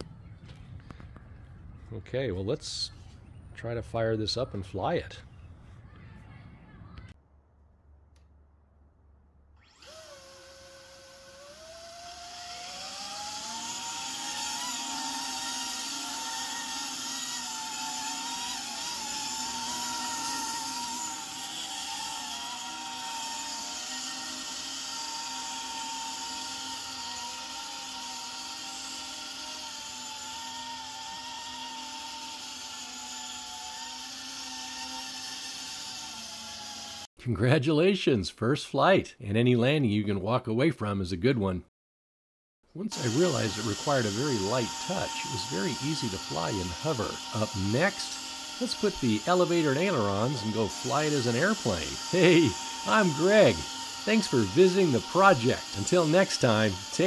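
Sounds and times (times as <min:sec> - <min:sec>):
electric motors and propellers whining: 0:09.6 - 0:37.1, 0:42.8 - 0:57.0.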